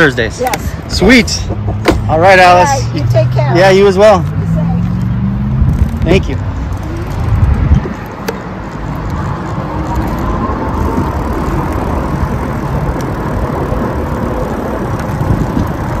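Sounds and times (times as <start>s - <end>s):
bicycle tyre and road noise: 0.0s - 16.0s
wind rumbling on microphone: 4.3s - 16.0s.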